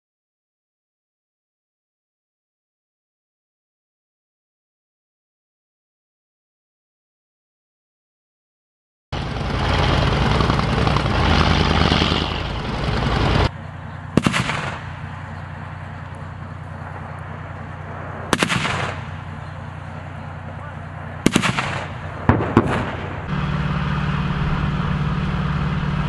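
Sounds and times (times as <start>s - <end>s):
tank engine drone: 9.1s - 26.0s
loud rough noise: 9.2s - 26.0s
tank gun firing: 10.3s - 24.1s.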